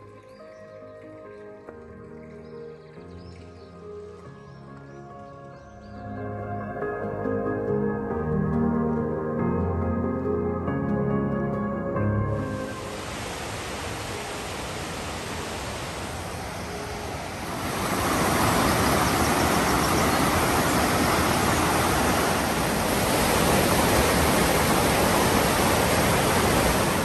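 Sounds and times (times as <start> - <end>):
stream rushing over boulders: 12.6 - 27.0.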